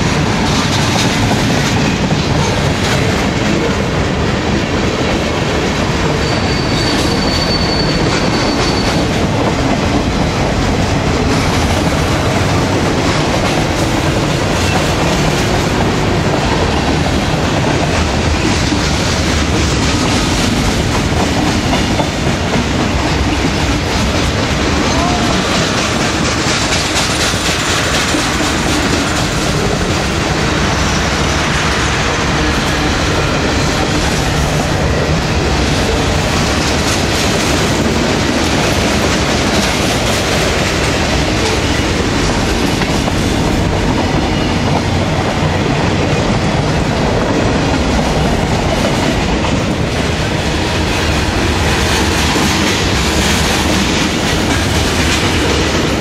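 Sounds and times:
clickety-clack of steel wheels: 0.0 - 56.0
freight train rumbling past: 0.0 - 56.0.

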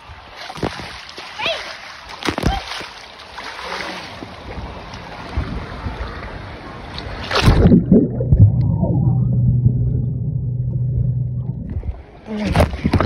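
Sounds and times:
pool water splashing: 0.0 - 13.0
underwater bubbling: 7.0 - 13.0
loud splash: 7.1 - 12.1
steady low hum: 7.6 - 12.9.

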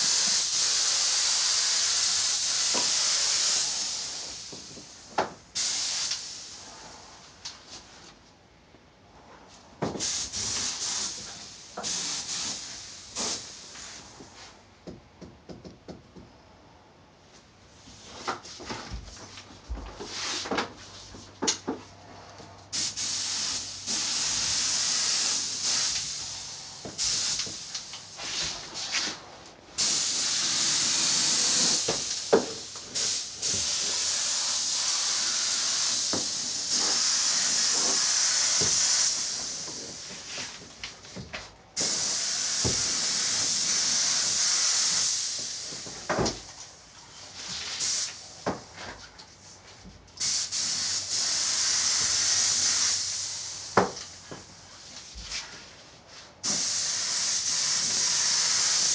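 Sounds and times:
paint spray gun hissing: 0.0 - 4.8, 5.6 - 6.6, 10.0 - 13.9, 22.7 - 28.6, 29.8 - 40.4, 41.8 - 45.8, 47.7 - 48.2, 50.2 - 54.1, 56.4 - 58.9.

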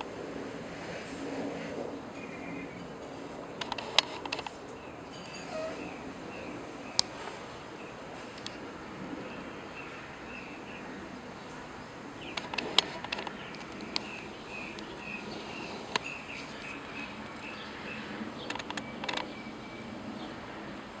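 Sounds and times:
sharp clicks: 18.4 - 19.3.

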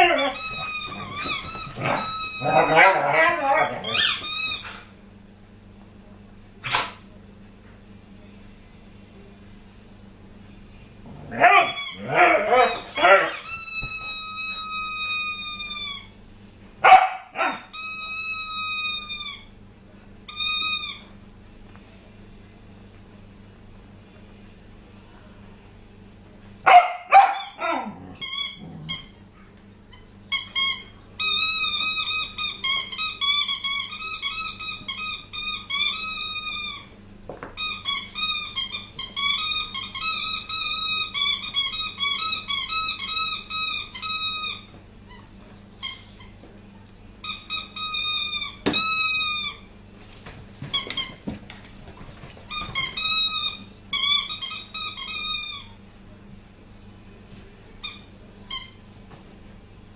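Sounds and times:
squeaky toy squeaks: 0.0 - 4.8, 30.3 - 36.8, 37.6 - 44.6.

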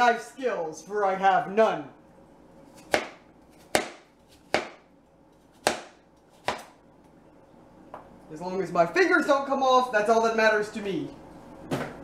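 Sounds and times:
knife chopping on cutting board: 2.7 - 6.8.

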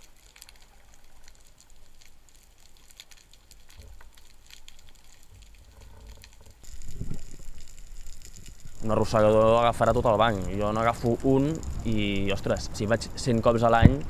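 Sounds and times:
underwater clicks crackling: 0.0 - 14.0
low underwater rumble: 5.2 - 12.8.

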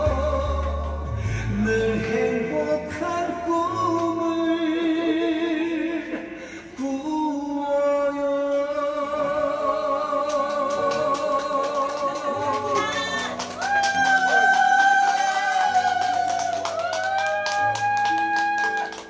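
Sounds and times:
man singing into microphone: 0.0 - 14.6.

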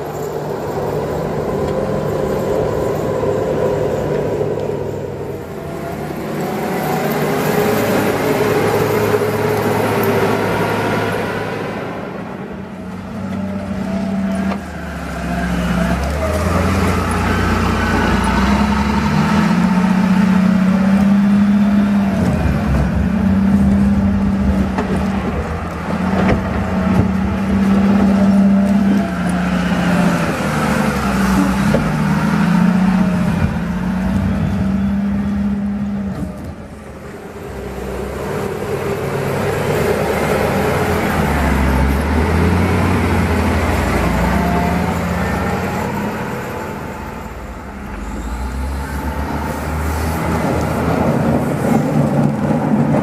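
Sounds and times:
wheel loader diesel engine: 0.0 - 53.0.

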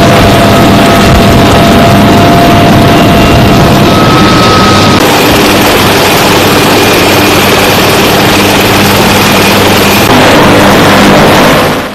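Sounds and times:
helicopter turbine and rotor noise: 0.0 - 11.9
high turbine whine: 0.0 - 11.9.

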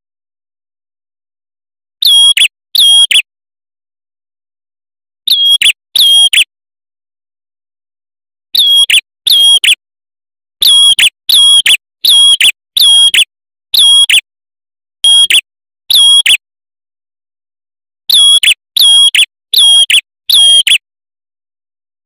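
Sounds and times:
bird singing high whistled notes: 2.0 - 3.3, 5.3 - 6.5, 8.6 - 9.8, 10.6 - 14.2, 15.0 - 16.4, 18.1 - 20.8.

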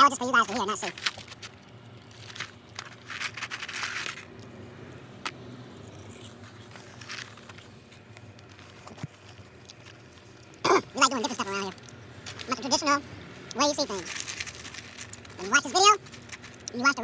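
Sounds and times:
chewing fries crunching: 0.0 - 17.0
paper tray rustling: 0.5 - 4.3, 13.7 - 17.0.

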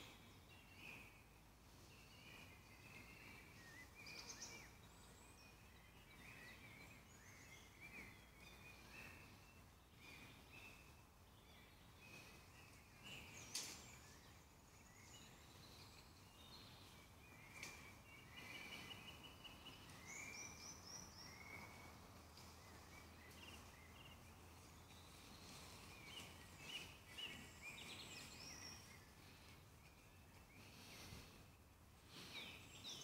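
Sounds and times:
birds chirping: 0.0 - 33.0
steady background hiss: 0.0 - 33.0.

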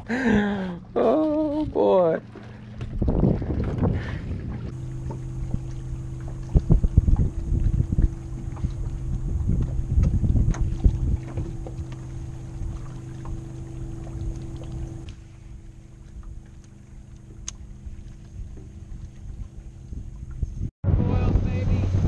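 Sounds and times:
steady low hum: 0.0 - 22.0
wind and handling on microphone: 2.8 - 15.1, 18.1 - 22.0.

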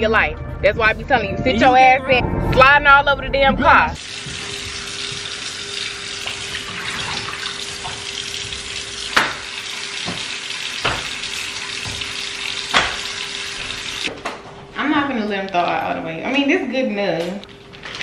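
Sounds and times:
faucet running into sink: 4.0 - 14.1.

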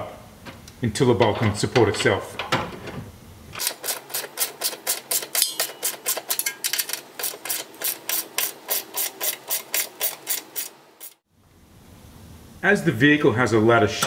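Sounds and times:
ratchet wrench clicking: 3.6 - 11.2.

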